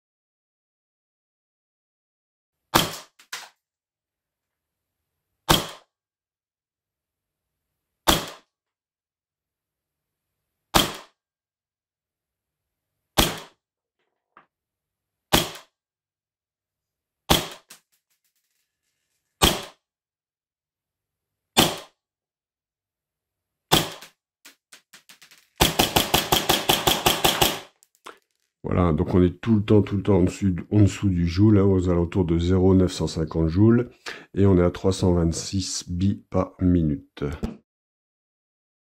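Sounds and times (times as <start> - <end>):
airsoft pistol shots: 2.8 - 3.2, 5.5 - 5.9, 8.1 - 8.5, 10.8 - 11.2, 13.2 - 13.6, 15.3 - 15.7, 17.3 - 17.7, 19.4 - 19.8, 21.6 - 22.0, 23.7 - 24.1, 25.6 - 27.8.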